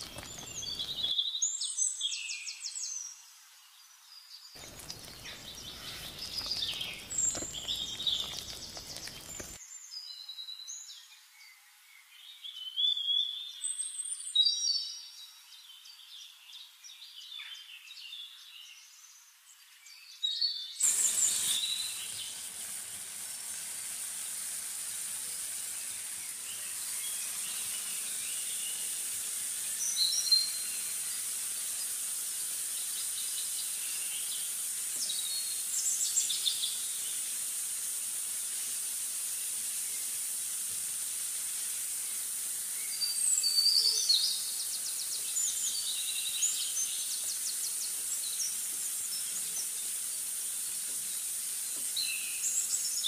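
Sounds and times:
bird chirps: 0:00.0 - 0:02.6, 0:04.6 - 0:09.6
steady high hiss: 0:00.0 - 0:10.0, 0:20.8 - 0:53.0.

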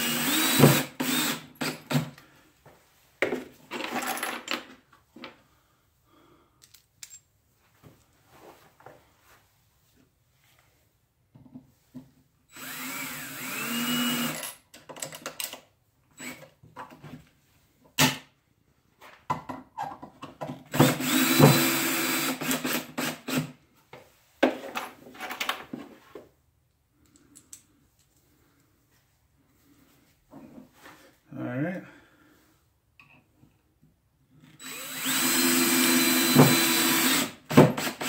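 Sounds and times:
drill driving screws into wood: 0:00.0 - 0:02.2, 0:12.5 - 0:14.6, 0:16.2 - 0:16.5, 0:20.7 - 0:23.6, 0:34.4 - 0:38.0.

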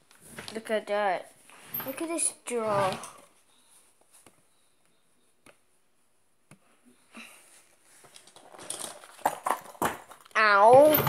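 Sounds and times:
rustling and handling knocks: 0:08.0 - 0:11.0.

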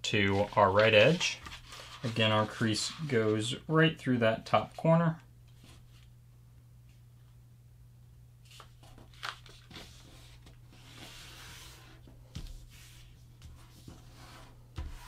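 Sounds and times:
faint low hum: 0:00.0 - 0:15.0
paper rustling and sliding: 0:00.1 - 0:03.6, 0:08.4 - 0:15.0
paper crinkles: 0:08.5 - 0:10.1.

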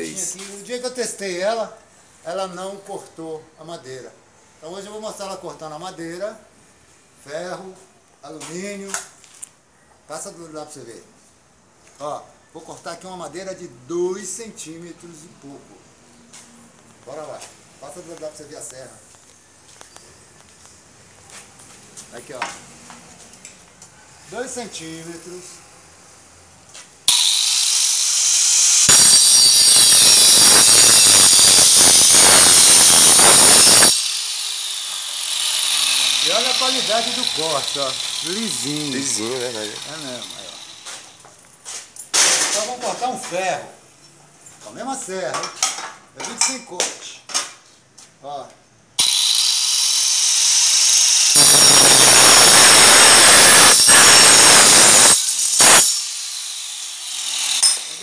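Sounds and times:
angle grinder blade whining: 0:27.1 - 0:41.2, 0:49.0 - 0:58.0
saw blade cutting wood: 0:27.1 - 0:41.2, 0:49.0 - 0:58.0.

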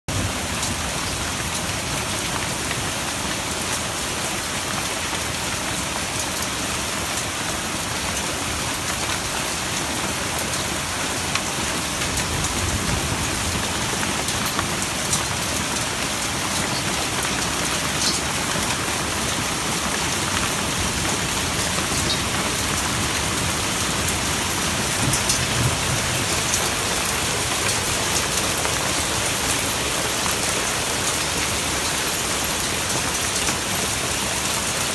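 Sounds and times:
heavy rain hissing: 0:08.4 - 0:34.9
hailstones ticking: 0:11.3 - 0:34.4
thunder rumbling: 0:20.8 - 0:27.6.

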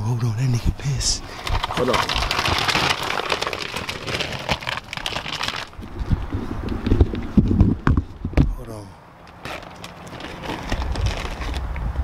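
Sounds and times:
plastic bag crinkling: 0:01.3 - 0:07.3, 0:09.4 - 0:11.6.

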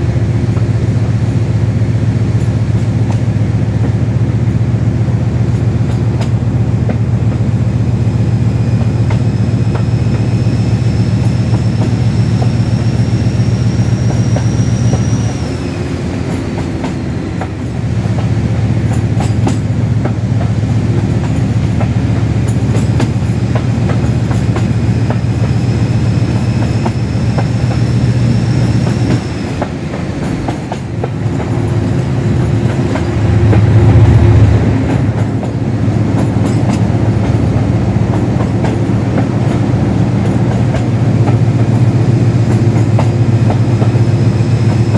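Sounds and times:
diesel locomotive engine throbbing: 0:00.0 - 0:44.9
high-pitched engine whine: 0:07.8 - 0:18.2, 0:24.8 - 0:30.6
wheels clicking over rail joints: 0:34.9 - 0:41.8.

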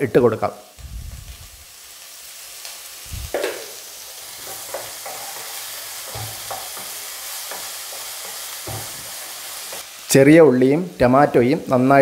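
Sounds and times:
vegetables sizzling in oil: 0:00.0 - 0:12.0
spatula scraping pan: 0:04.3 - 0:09.8.

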